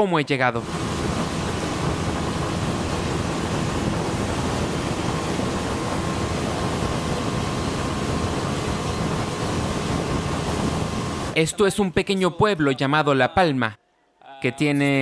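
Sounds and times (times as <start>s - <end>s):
motorboat engine drone: 0.6s - 11.4s
rushing wind and water: 0.6s - 11.4s.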